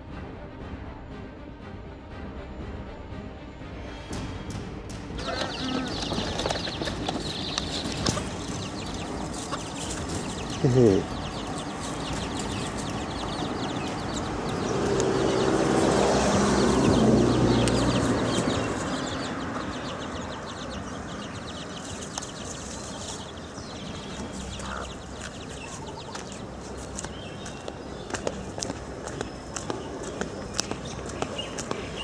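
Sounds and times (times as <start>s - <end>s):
chickens clucking and chirping: 5.2s - 32.0s.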